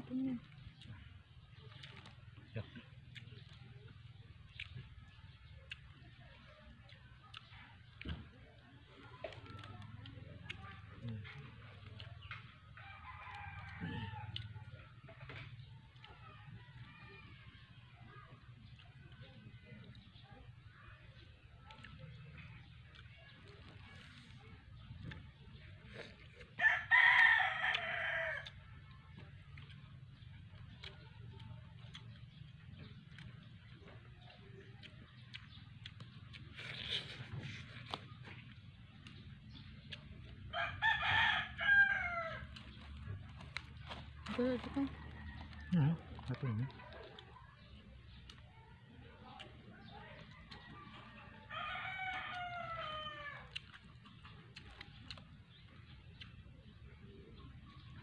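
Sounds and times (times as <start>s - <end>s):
rooster crowing: 12.8s - 14.4s, 26.6s - 28.6s, 40.5s - 42.5s, 51.1s - 53.5s.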